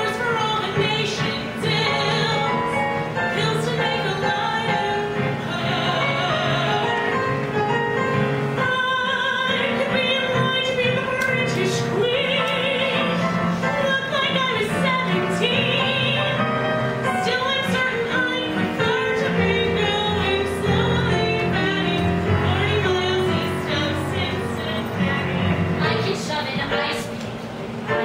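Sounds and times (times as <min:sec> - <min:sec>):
woman singing with vibrato: 0:00.0 - 0:27.2.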